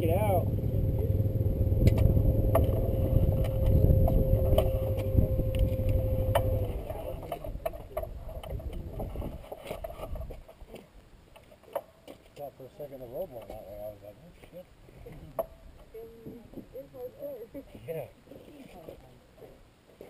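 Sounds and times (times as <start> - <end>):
vehicle engine running: 0.0 - 7.4.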